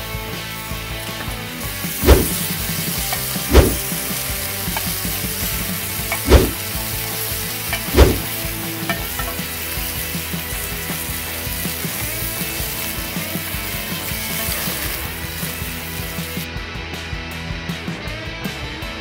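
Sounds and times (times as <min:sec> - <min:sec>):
meat sizzling in a pan: 0:00.0 - 0:16.5
heavy thuds: 0:02.0 - 0:02.4, 0:03.5 - 0:03.8, 0:06.2 - 0:06.6, 0:07.9 - 0:08.3.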